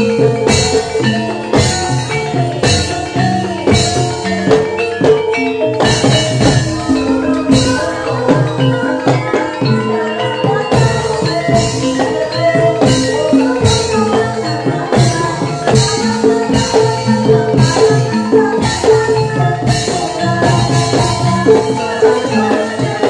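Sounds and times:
drums: 0:00.0 - 0:23.0
tuned percussion melody: 0:00.0 - 0:23.0
bright metallic clash: 0:03.7 - 0:09.8.

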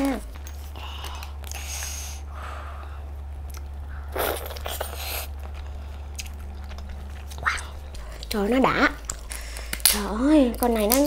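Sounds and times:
person chewing: 0:00.5 - 0:11.0.

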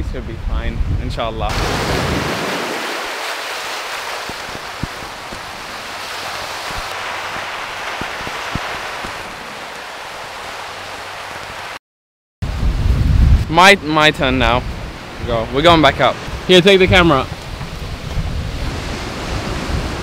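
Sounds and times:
waves washing over rocks: 0:01.5 - 0:11.8, 0:14.5 - 0:20.0.

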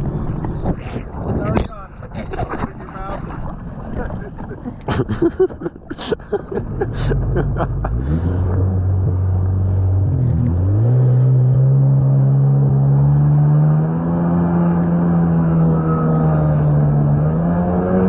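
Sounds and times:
jet ski engine revving: 0:06.5 - 0:18.0.

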